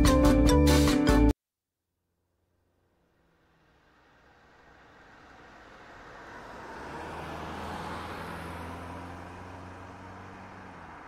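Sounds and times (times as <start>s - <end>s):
vehicle engine and road noise: 2.2s - 11.0s.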